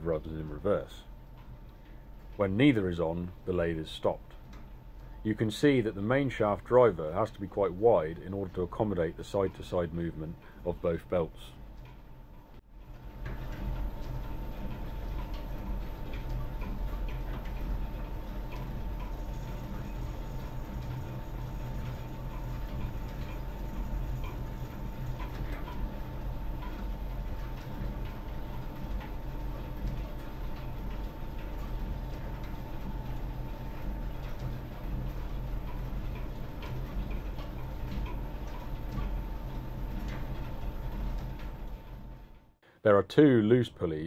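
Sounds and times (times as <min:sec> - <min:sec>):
faint steady whine: 0:14.8 - 0:44.0.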